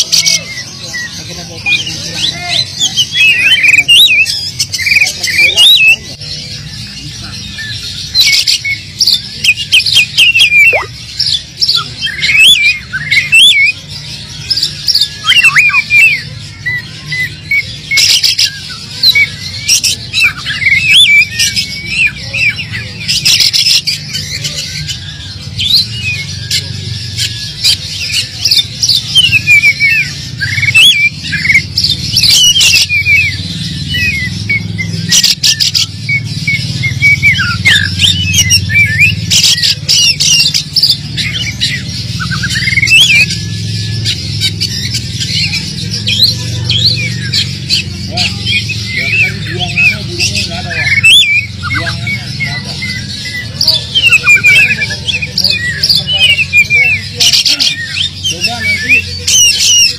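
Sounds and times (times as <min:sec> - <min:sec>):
bird singing varied whistles: 0:08.2 - 0:10.9, 0:14.9 - 0:23.9, 0:25.6 - 0:44.2, 0:44.8 - 0:59.9.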